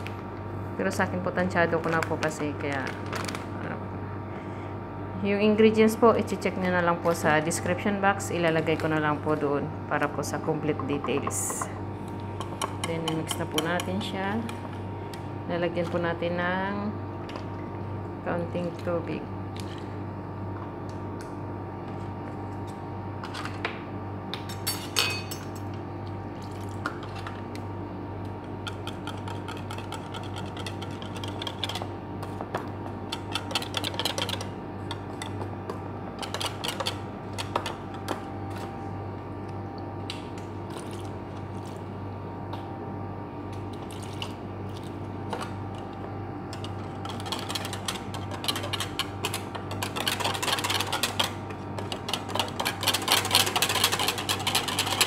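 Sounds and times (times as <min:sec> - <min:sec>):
steady low hum: 0:00.0 - 0:55.0
whisk wires clinking against bowl: 0:46.5 - 0:55.0.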